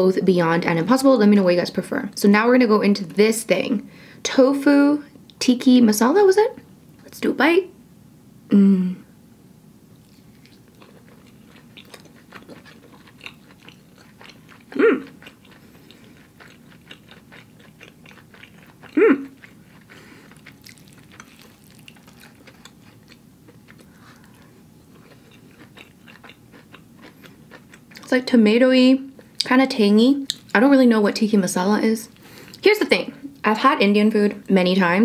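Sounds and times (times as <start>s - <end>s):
person humming: 8.5s - 9.1s, 14.8s - 15.2s, 19.0s - 19.4s
close chewing with mouth smacks: 10.0s - 28.1s, 30.2s - 30.6s.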